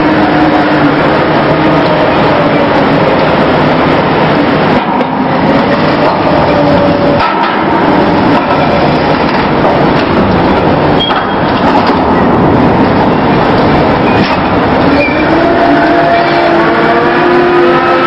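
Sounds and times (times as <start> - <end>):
harbour crane machinery noise: 0.0 - 18.0.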